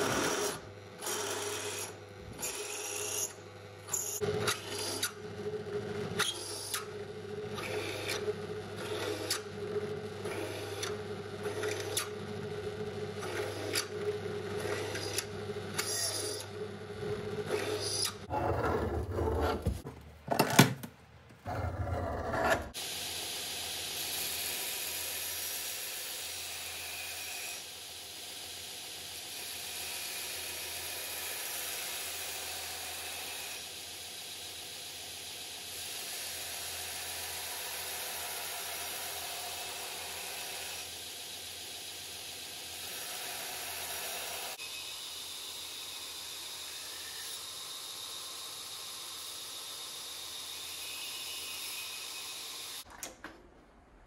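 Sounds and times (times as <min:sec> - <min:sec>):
belt grinder grinding steel: 0:00.0 - 0:05.1.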